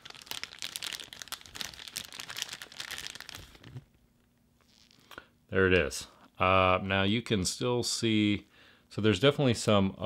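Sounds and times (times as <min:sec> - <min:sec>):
plastic bag crinkling: 0:00.0 - 0:03.9.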